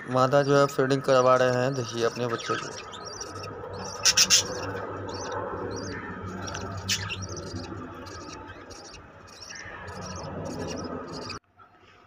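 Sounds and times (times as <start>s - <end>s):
steady low hum: 0.0s - 11.4s
budgerigars chirping: 0.1s - 11.4s
loud rasping bird call: 1.8s - 11.4s.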